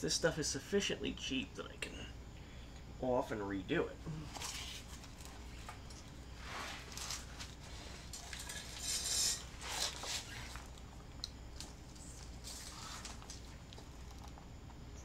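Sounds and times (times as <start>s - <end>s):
tape peeling rustles: 4.3s - 13.9s.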